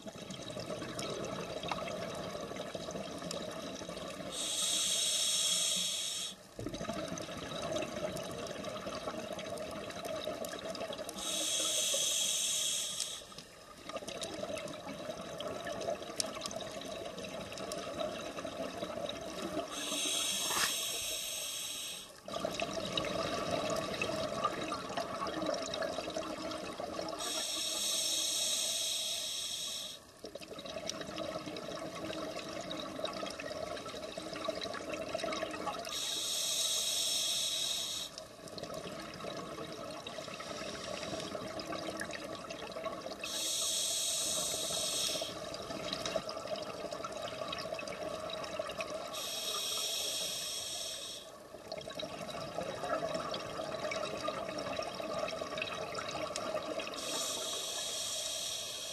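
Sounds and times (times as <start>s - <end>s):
bubbling hiss of exhaled air: 4.2s - 7.0s, 11.1s - 13.4s, 19.4s - 30.0s, 35.6s - 38.2s, 43.1s - 46.0s, 48.6s - 51.4s, 52.6s - 58.9s.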